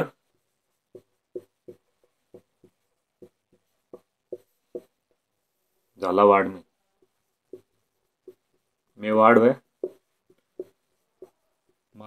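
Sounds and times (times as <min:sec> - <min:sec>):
pen scratching and tapping: 0:00.2 - 0:05.4, 0:07.0 - 0:11.9.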